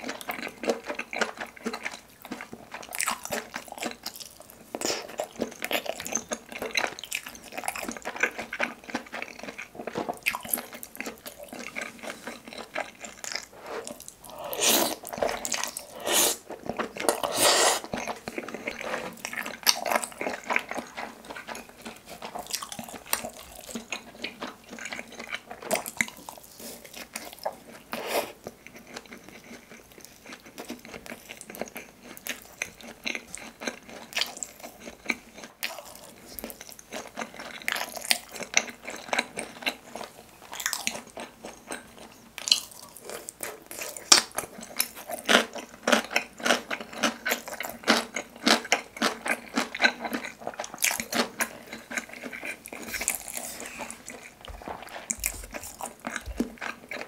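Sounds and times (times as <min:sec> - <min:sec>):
chewing mouth sounds: 0:00.0 - 0:57.0
slurping: 0:13.0 - 0:19.7.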